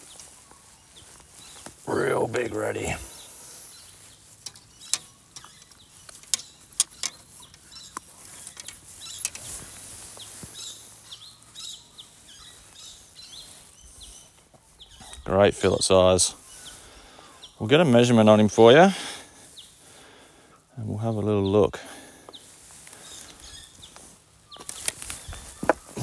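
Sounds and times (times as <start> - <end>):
boots stepping over rocks and sticks: 0.0 - 15.3, 22.0 - 26.0
bird chirps: 0.0 - 18.3, 21.0 - 26.0.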